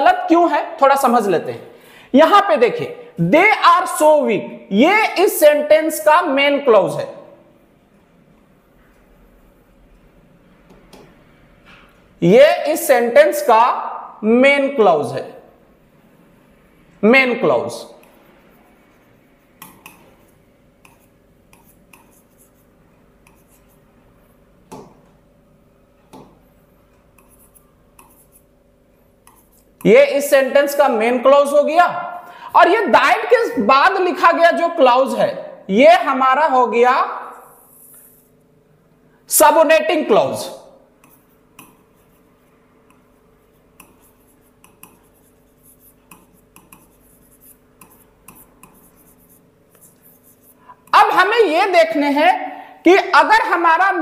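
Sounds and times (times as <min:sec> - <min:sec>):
faint steady hum: 0:00.0 - 0:54.0
stylus tapping and scraping glass: 0:44.6 - 0:45.0.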